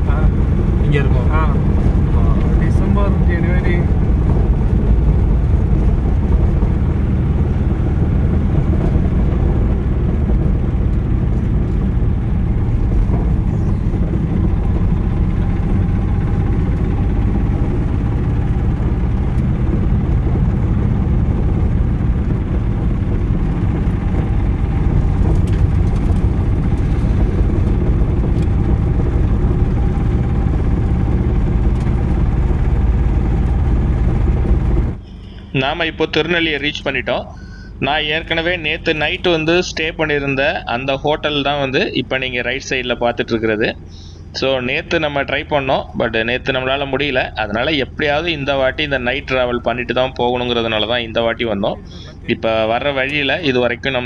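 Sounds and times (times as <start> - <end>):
engine and road noise: 0.0 - 54.0
faint steady whine: 0.0 - 54.0.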